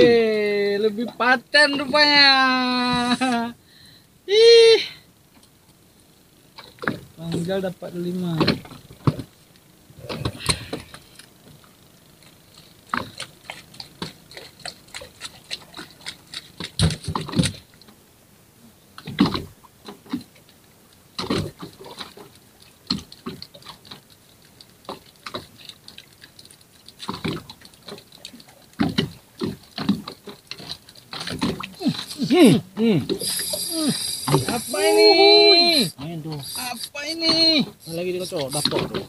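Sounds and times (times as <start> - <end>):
water lapping against hull: 0.0 - 39.0
knocks and slaps on a boat: 8.3 - 9.3.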